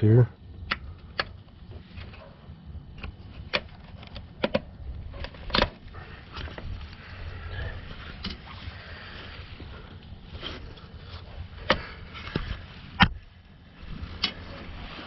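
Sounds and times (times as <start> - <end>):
sharp plastic clicks: 0.6 - 1.5, 2.9 - 5.8.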